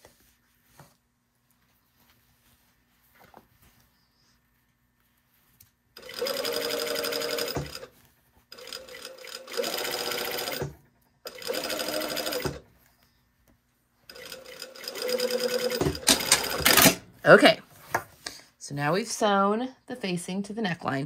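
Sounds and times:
sewing machine running: 6.0 - 7.9, 8.5 - 10.7, 11.3 - 12.6, 14.1 - 17.0.

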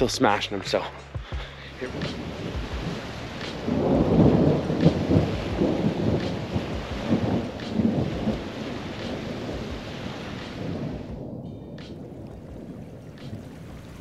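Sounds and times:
thunder rumbling: 1.7 - 14.0.

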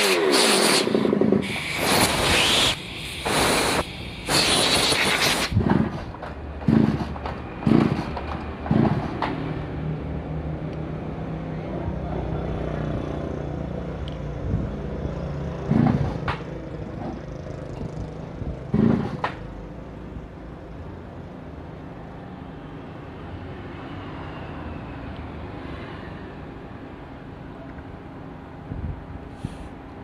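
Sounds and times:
sharp knocks: 5.6 - 9.4, 15.7 - 17.2.

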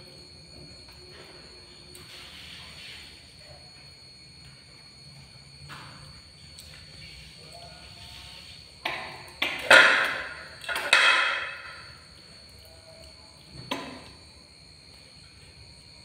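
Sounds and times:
plate clattering on tile floor: 9.6 - 11.8.

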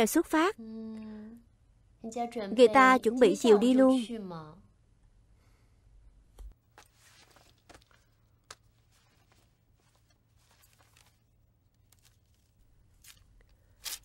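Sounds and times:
faint clicks and rustles: 6.5 - 14.0.

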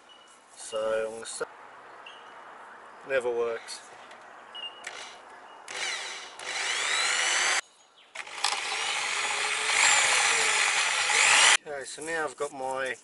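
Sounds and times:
electric drill whining: 4.8 - 7.6, 8.2 - 11.6.

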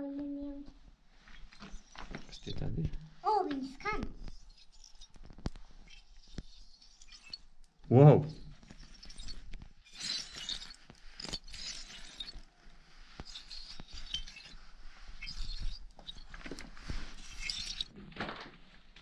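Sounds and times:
fingers tapping crystalline crust: 3.6 - 17.9.

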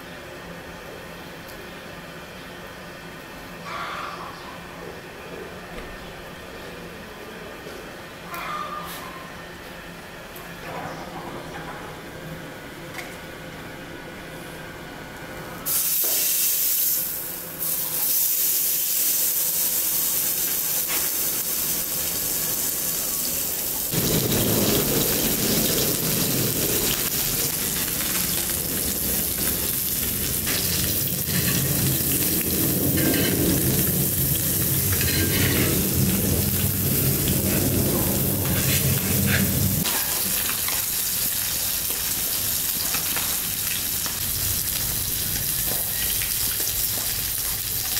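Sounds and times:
fish sizzling in a pan: 15.7 - 47.9
low rumble: 23.9 - 39.9
metal spatula scraping iron: 34.9 - 35.8.

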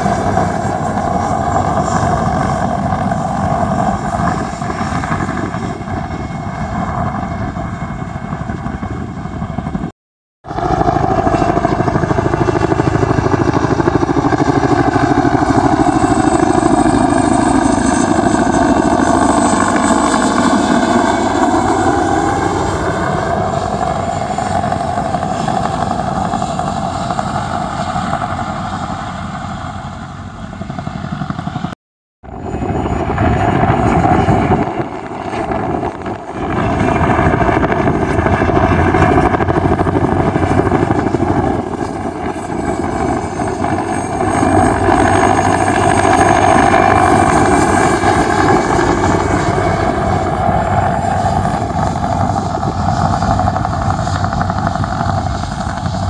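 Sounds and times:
helicopter passing overhead: 0.0 - 56.0.

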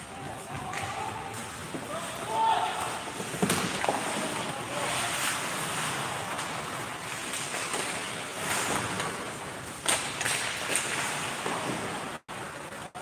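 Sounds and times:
arena noise: 0.0 - 13.0
skates on ice: 0.0 - 13.0
hockey stick or puck clacks: 0.5 - 1.8, 3.2 - 4.5, 6.3 - 12.0.

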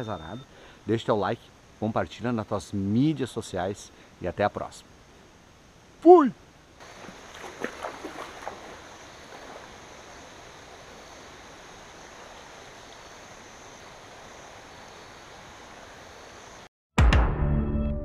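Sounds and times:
river flowing: 6.6 - 16.6
feet splashing in water: 6.8 - 10.7.

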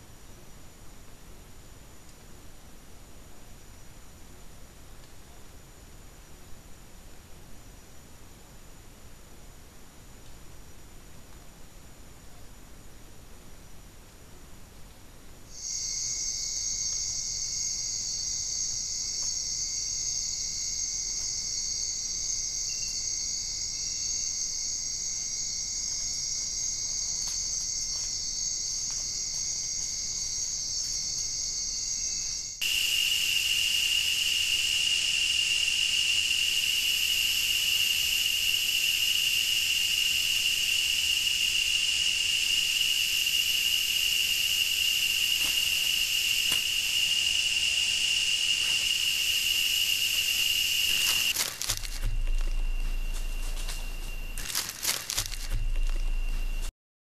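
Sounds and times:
insect chorus: 15.4 - 56.7
shrill insect tone: 15.5 - 56.7.

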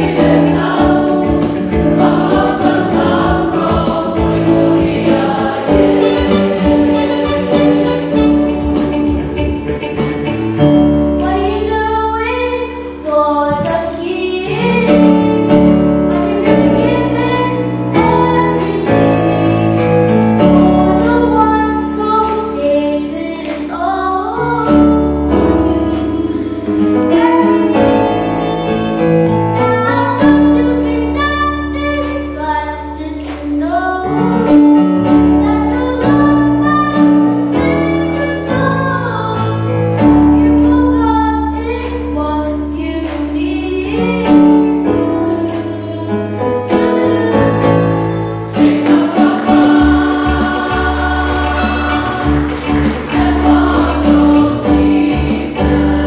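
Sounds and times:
women and children singing: 0.0 - 9.9, 11.2 - 39.6, 40.4 - 56.0
instrumental accompaniment: 0.0 - 56.0.

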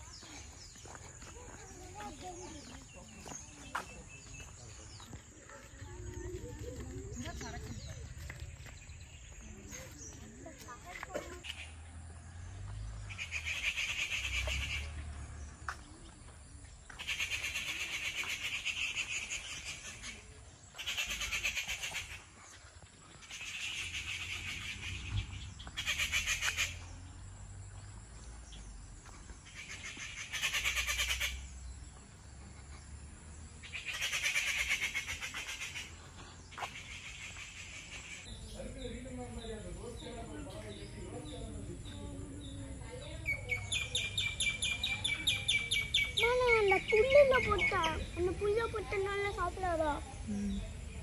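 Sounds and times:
high pulsing animal calls: 13.0 - 15.1, 17.0 - 22.6, 23.2 - 27.1, 29.4 - 31.6, 33.6 - 38.4.

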